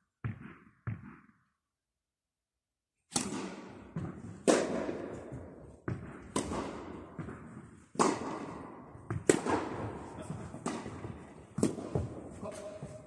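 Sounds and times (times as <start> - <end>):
tennis ball bouncing on court: 0.2 - 1.3, 3.1 - 13.0
tennis ball struck by racket: 3.1 - 13.0.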